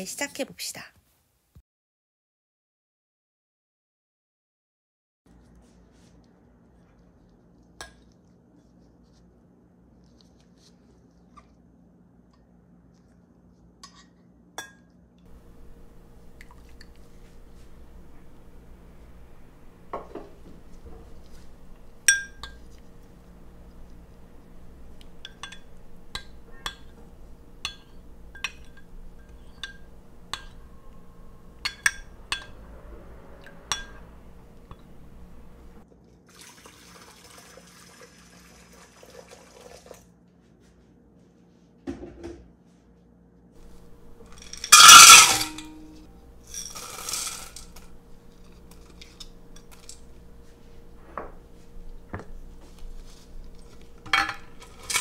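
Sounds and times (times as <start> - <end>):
metal spoon clinking glass bowl: 22.0 - 22.8, 24.9 - 27.0, 27.6 - 32.6, 33.7 - 35.7, 44.3 - 50.2
loud clatter of bowls: 43.6 - 50.4, 53.0 - 55.0.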